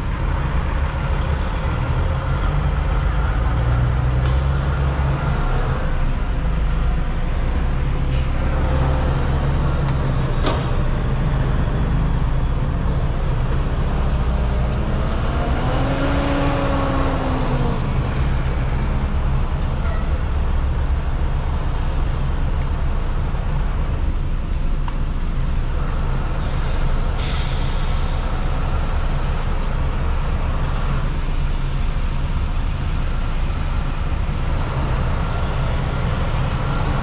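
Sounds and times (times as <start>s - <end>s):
air brakes hiss: 26.4s - 28.4s.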